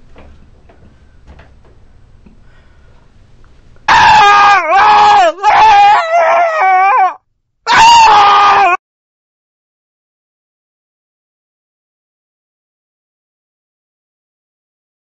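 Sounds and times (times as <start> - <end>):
faint knocks: 0.0 - 3.0.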